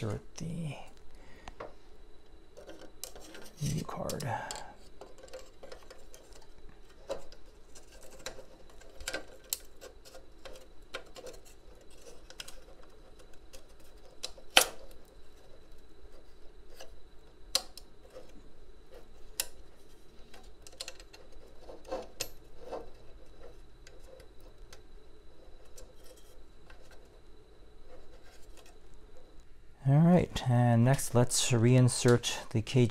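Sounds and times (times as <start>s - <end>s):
small clicks and taps of metal: 17.5s - 17.9s.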